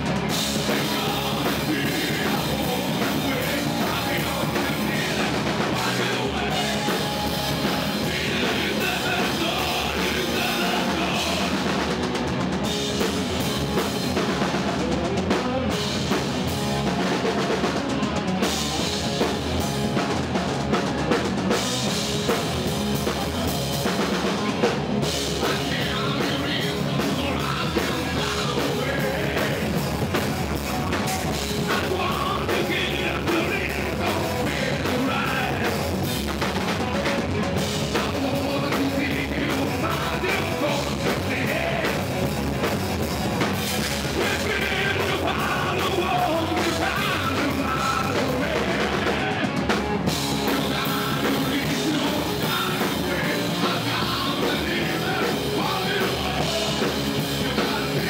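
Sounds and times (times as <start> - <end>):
person singing: 0.0 - 11.9, 23.2 - 42.7, 43.7 - 58.0
drum kit: 0.0 - 58.0
electric guitar: 0.0 - 58.0.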